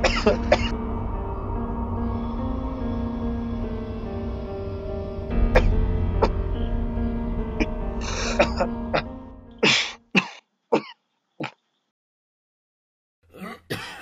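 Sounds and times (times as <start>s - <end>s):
man coughing: 0.0s - 0.7s, 7.6s - 11.6s, 13.4s - 14.0s
soft background music: 0.0s - 9.9s.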